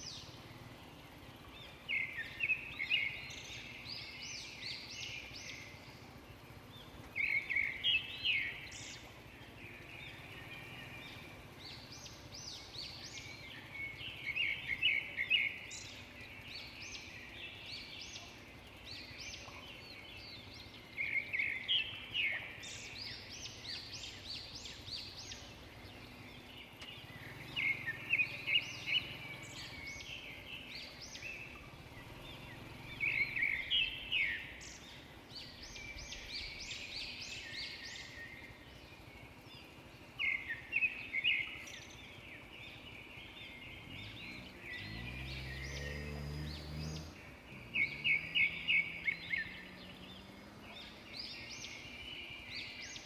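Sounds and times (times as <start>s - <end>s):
bird singing high rapid notes: 0.0s - 53.0s
vehicle engine rising in pitch: 31.2s - 35.0s, 43.4s - 52.1s.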